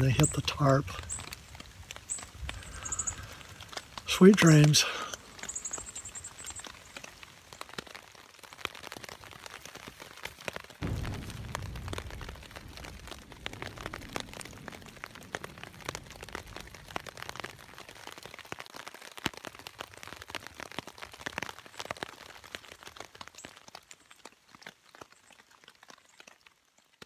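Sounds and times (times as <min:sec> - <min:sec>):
rain pattering on tarp: 0:00.0 - 0:27.0
low thunder rumble: 0:10.8 - 0:18.0.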